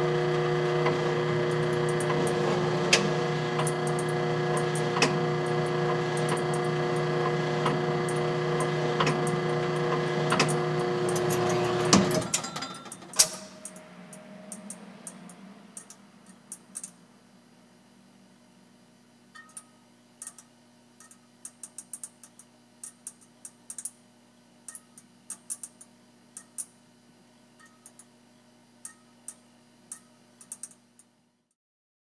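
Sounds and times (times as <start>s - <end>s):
steady motor hum: 0.0s - 12.4s
sharp mechanism clicks: 20.2s - 24.0s, 29.9s - 31.1s.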